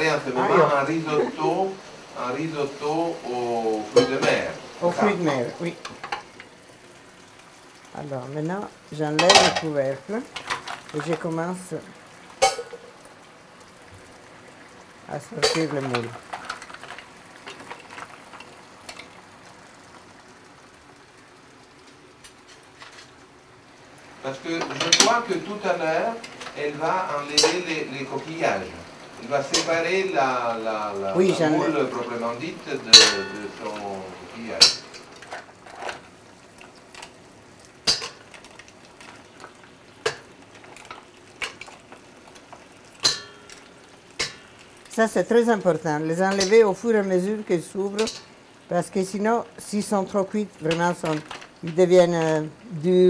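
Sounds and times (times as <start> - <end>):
mussels sizzling in a pan: 0.0 - 53.0
mussel shells clinking in pan: 9.2 - 11.3, 12.4 - 13.0, 32.9 - 33.9, 34.5 - 37.2, 37.8 - 44.9, 47.9 - 48.4, 50.6 - 52.4.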